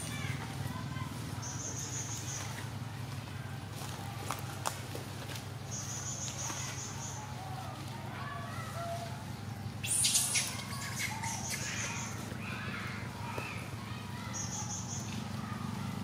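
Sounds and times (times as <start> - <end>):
rustle among leaves: 0.0 - 16.0
faint chirps: 9.8 - 12.2.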